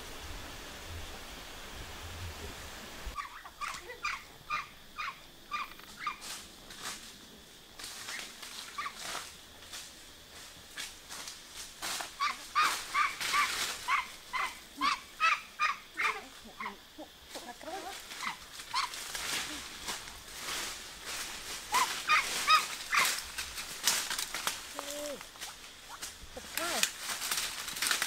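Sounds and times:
fowl calling: 3.1s - 6.3s, 12.2s - 19.7s, 21.7s - 23.2s.

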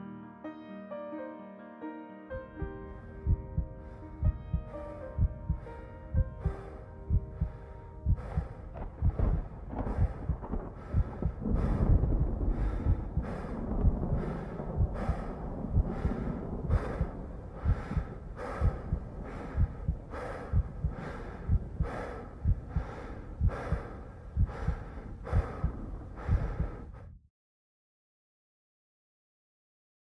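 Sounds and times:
heartbeat thumps: 3.2s - 27.2s
man gasping breathing: 3.8s - 27.1s.

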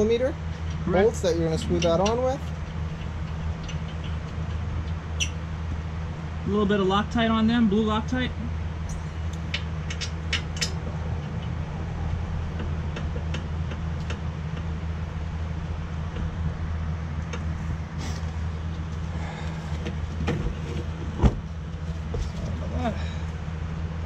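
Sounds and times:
steady low hum: 0.0s - 24.0s
metal bolts and tools clicking: 1.6s - 5.3s, 8.9s - 11.6s.

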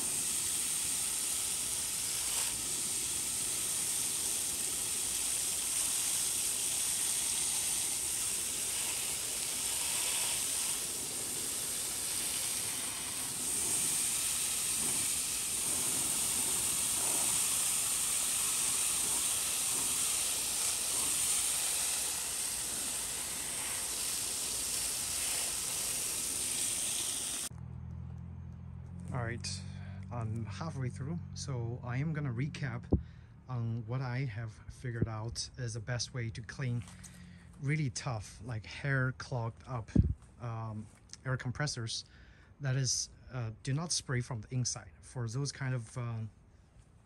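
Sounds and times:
hose spraying water: 0.0s - 27.5s.

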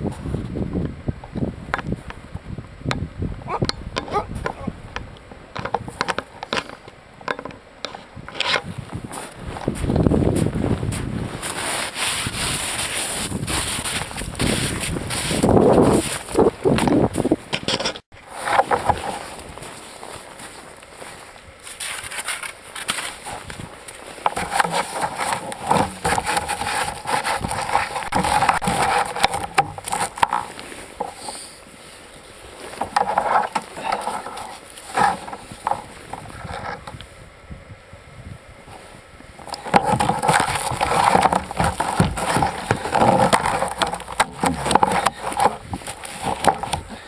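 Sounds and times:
kayak paddle clicks and knocks: 2.9s - 8.6s, 39.4s - 47.0s
knocks and scraping on kayak deck: 2.9s - 20.6s, 21.8s - 37.0s, 39.4s - 47.0s
clothing rustling: 18.3s - 36.9s.

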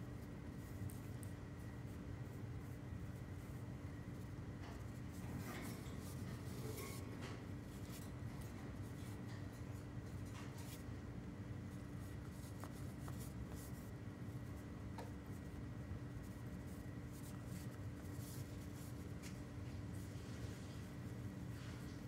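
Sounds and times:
bird feet scratching and rustling: 4.6s - 10.9s.

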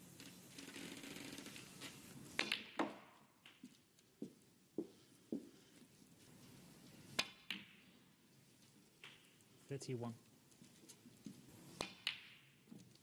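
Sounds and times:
snooker balls clicking: 1.1s - 3.9s, 8.9s - 9.5s, 11.2s - 13.0s
soft footsteps on carpet: 3.6s - 7.0s.

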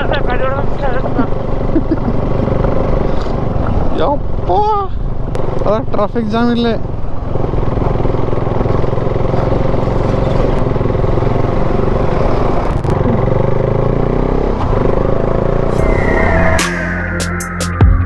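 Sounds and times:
motorcycle engine running: 0.0s - 16.1s
falling tone: 15.6s - 18.0s.

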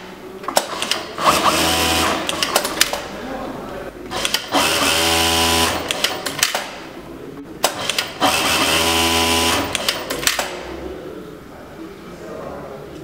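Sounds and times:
sewing machine humming: 0.7s - 2.9s, 4.1s - 6.3s, 7.8s - 10.2s
sharp clicks: 4.1s - 4.7s, 5.8s - 6.8s, 7.6s - 8.2s, 9.6s - 10.6s.

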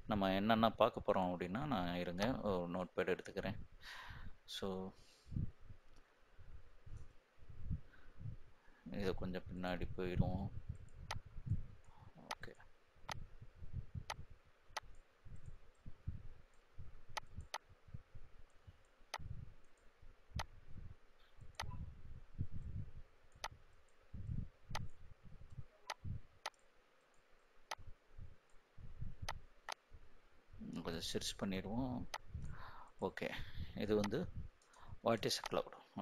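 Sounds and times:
computer mouse clicking: 12.2s - 13.2s, 14.8s - 15.9s, 16.5s - 17.7s, 23.3s - 24.0s, 24.7s - 28.6s, 35.4s - 35.6s.

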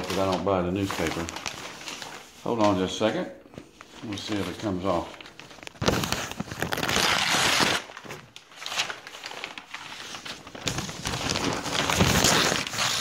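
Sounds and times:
paper and plastic rustling: 0.0s - 13.0s.

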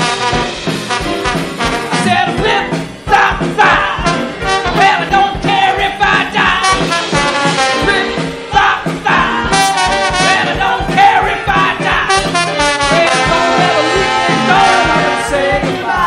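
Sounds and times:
live band with horns: 0.0s - 16.0s.

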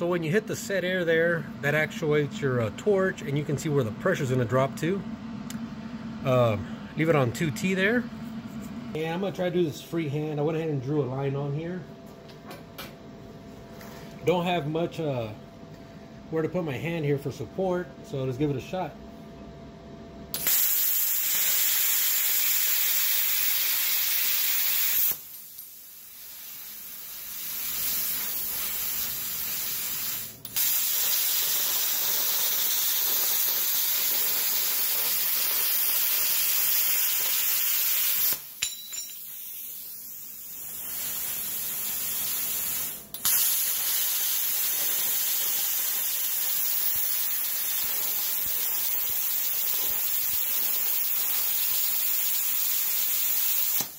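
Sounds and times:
plasma cutter hissing: 20.4s - 38.6s, 39.3s - 53.9s.

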